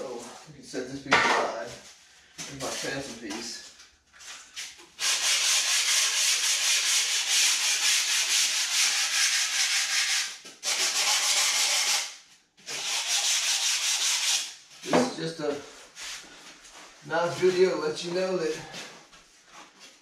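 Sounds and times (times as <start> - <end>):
hand sanding foam board: 5.0 - 12.1, 12.7 - 14.9.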